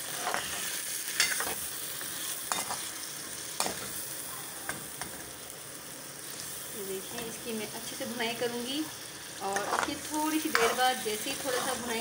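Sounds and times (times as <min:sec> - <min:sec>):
spatula scraping pan: 0:00.0 - 0:01.6, 0:09.4 - 0:12.0
food sizzling in hot oil: 0:00.0 - 0:12.0.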